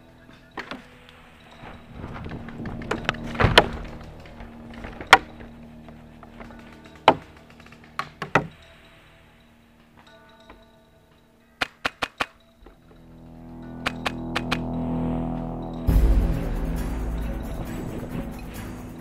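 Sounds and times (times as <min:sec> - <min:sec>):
gear rustling and brushing: 0:00.8 - 0:10.8.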